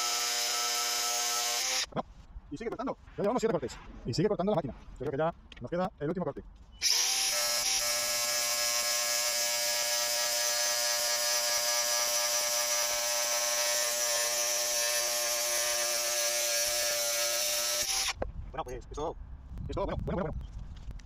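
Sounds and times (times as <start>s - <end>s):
angle grinder cutting steel: 0.0s - 1.9s, 6.8s - 18.2s.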